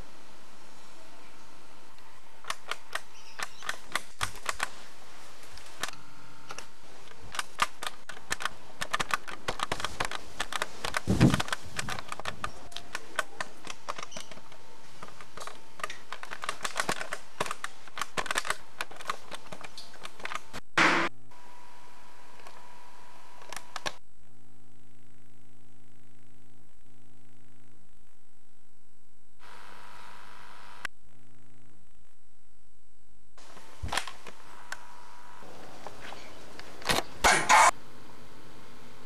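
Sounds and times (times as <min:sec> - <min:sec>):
rapid clicking and tapping: 0:06.5 - 0:20.6
loud knock: 0:20.8 - 0:21.1.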